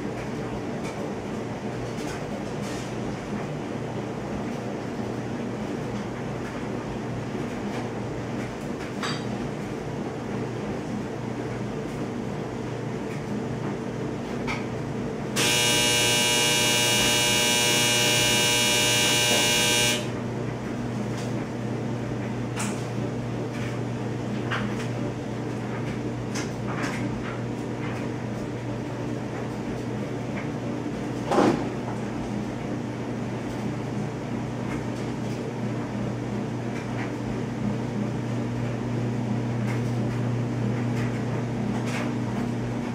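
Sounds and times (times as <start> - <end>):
constant low hum: 5.8 - 32.7
loud buzzing tone: 15.4 - 20.2.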